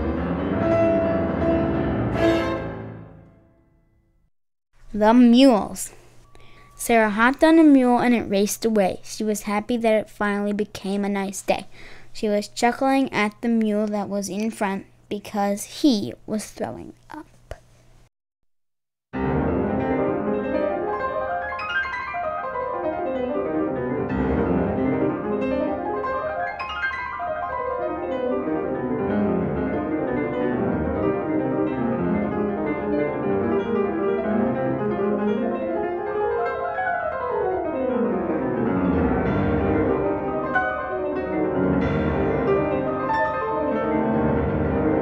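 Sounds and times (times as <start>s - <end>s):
classical piano scales: 0.0s - 3.5s, 19.2s - 45.0s.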